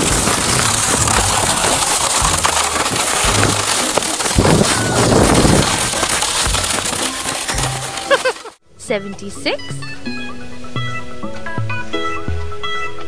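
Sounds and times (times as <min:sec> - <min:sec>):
sled scraping over crusted snow: 0:00.0 - 0:08.6.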